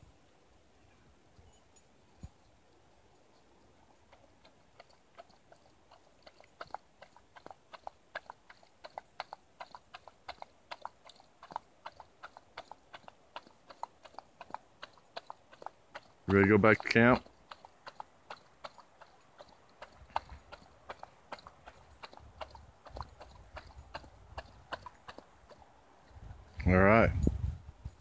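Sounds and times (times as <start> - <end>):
dog chewing and crunching: 3.3 - 25.6.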